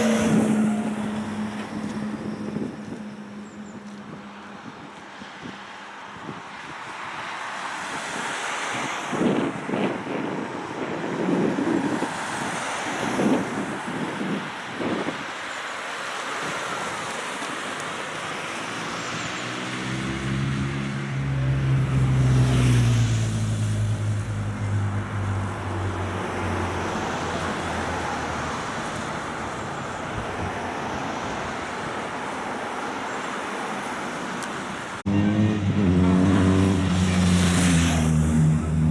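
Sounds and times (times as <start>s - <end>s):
vehicle passing close by: 0.0s - 5.6s, 18.2s - 32.4s, 35.0s - 38.9s
cars driving past: 0.0s - 38.9s
steady traffic noise: 0.0s - 38.9s.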